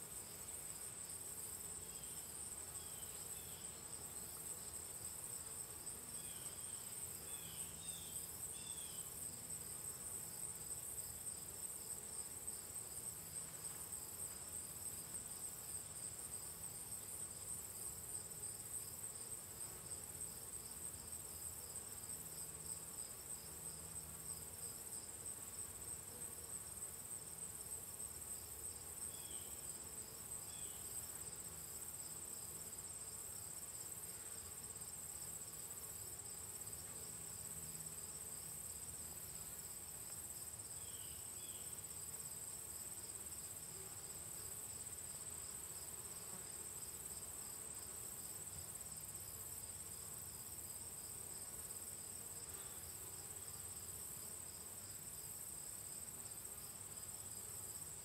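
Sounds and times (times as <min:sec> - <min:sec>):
high-pitched insect trill: 0:06.2 - 0:09.1, 0:28.4 - 0:29.8, 0:30.4 - 0:31.4, 0:40.4 - 0:42.0.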